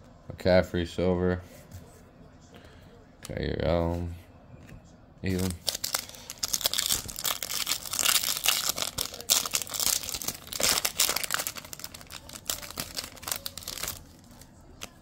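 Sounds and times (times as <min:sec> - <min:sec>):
foil wrapper crinkling and tearing: 0:05.3 - 0:15.0.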